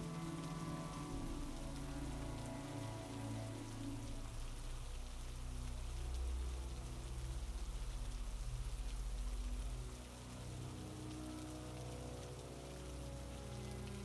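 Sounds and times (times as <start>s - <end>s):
low deep hum: 0.0s - 14.0s
rain falling: 0.0s - 14.0s.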